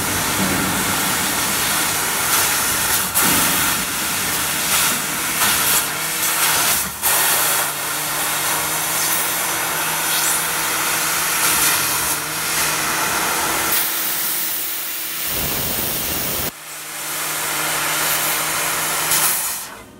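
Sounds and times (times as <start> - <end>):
steady machine hum: 0.0 - 11.3
laser cutter gas jet hiss: 0.0 - 16.5, 18.0 - 19.8.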